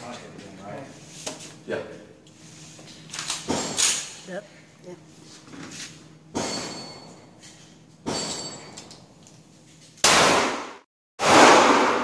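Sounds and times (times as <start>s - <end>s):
handgun shots echoing indoors: 10.0s - 12.0s.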